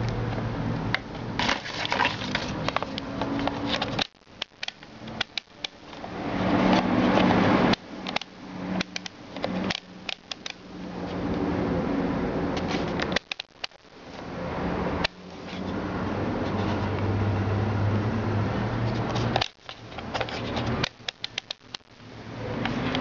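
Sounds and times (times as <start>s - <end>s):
plastic multimeter rubbing: 1.4s - 6.1s, 18.9s - 22.0s
rotary dial clicking: 2.6s - 6.1s, 6.7s - 10.6s, 12.9s - 13.8s, 19.4s - 21.9s.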